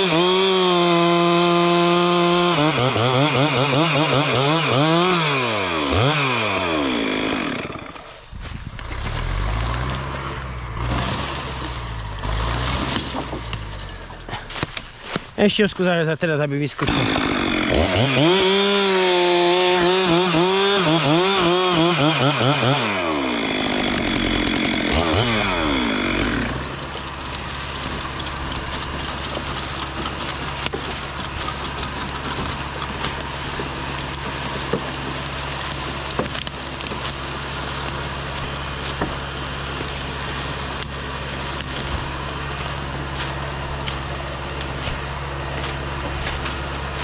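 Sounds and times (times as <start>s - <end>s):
chainsaw idling: 0.0s - 15.2s, 16.6s - 47.0s
chainsaw cutting wood: 0.0s - 15.4s, 16.8s - 47.0s.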